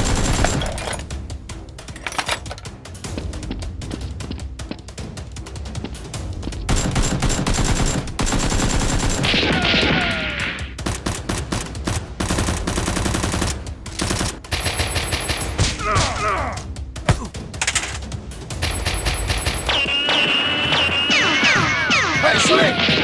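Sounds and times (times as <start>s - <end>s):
automatic gunfire bursts: 0.0s - 0.8s, 6.7s - 9.4s, 10.8s - 15.6s.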